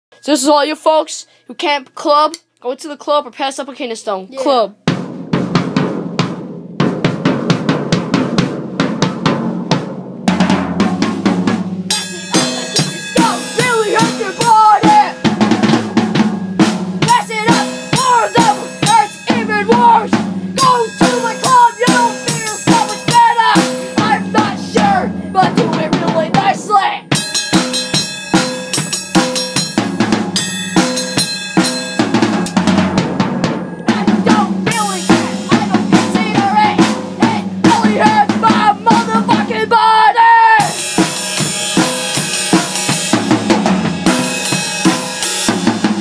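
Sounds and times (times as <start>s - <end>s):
drum kit beat: 4.4s - 46.0s
sliding pitched tone: 11.8s - 28.4s, 30.2s - 39.0s.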